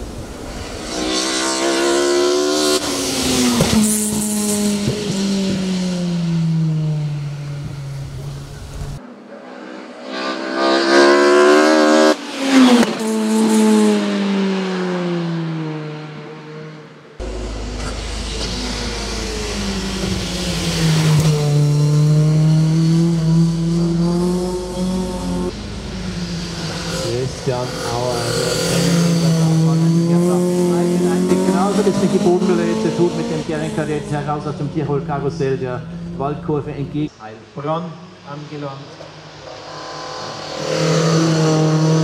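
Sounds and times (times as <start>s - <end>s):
race car engine at full throttle: 0.0s - 37.1s, 37.8s - 42.0s.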